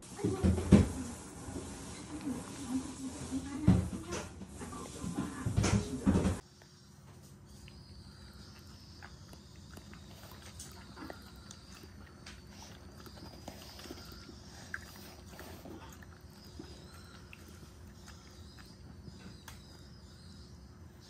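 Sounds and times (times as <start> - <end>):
dog licking and smacking lips: 8.4 - 19.8.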